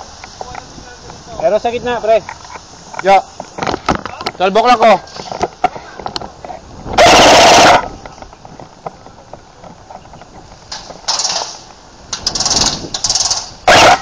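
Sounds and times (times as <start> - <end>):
airsoft rifle bursts: 7.0 - 7.9, 12.2 - 14.0.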